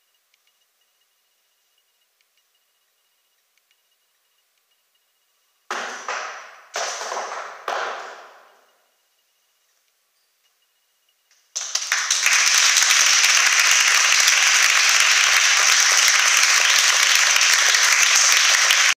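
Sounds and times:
audience applauding: 5.7s - 8.5s, 11.5s - 19.0s.

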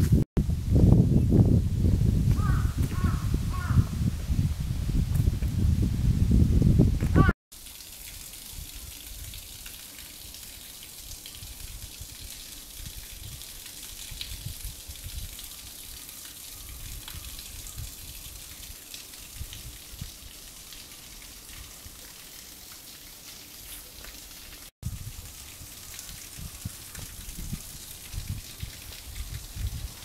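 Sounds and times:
wind rumbling on microphone: 0.0s - 7.3s, 11.3s - 15.5s, 16.5s - 18.7s, 19.3s - 20.4s, 24.8s - 30.0s.

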